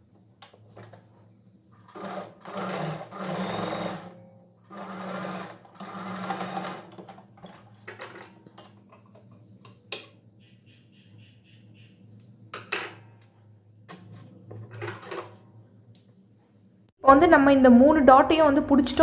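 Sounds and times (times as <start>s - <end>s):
sewing machine stitching: 1.8s - 7.6s.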